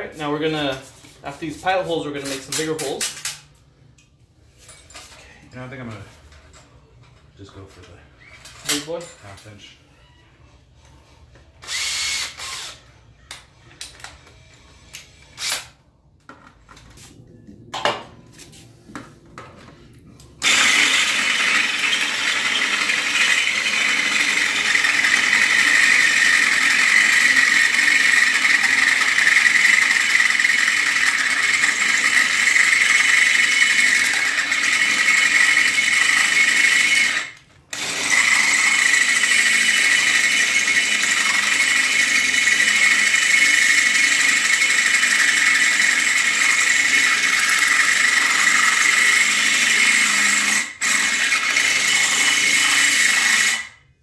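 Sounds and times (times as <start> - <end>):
power drill cutting metal: 11.6 - 12.8, 20.4 - 53.8.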